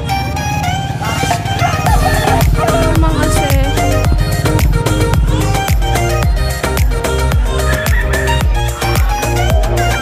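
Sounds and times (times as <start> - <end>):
upbeat dance music: 1.1 - 10.0
kick drum beat: 1.9 - 7.6.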